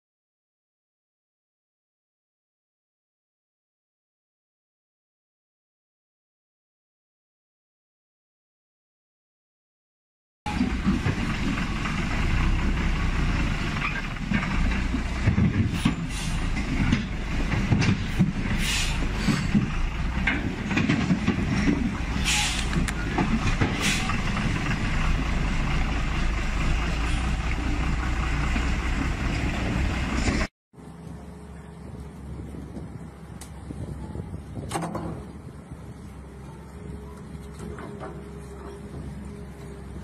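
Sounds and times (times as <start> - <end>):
truck engine labouring: 10.5 - 40.0
creaks: 13.7 - 24.4
short hisses: 18.6 - 19.2, 22.2 - 22.8.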